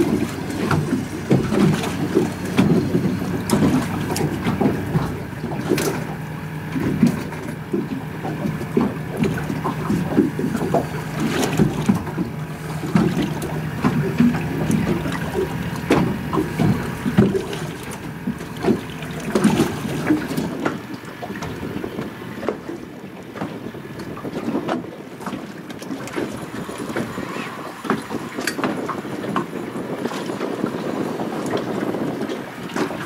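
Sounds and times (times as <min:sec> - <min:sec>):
waves lapping against boat hull: 0:00.0 - 0:33.0
wind on microphone: 0:00.0 - 0:33.0.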